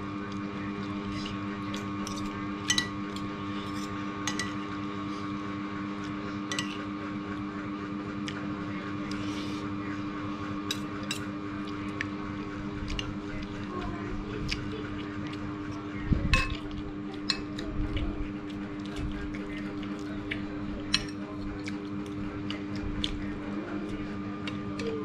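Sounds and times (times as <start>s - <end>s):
steady hum: 0.0s - 25.0s
cutlery clinking on a plate: 2.0s - 4.6s, 16.4s - 17.6s.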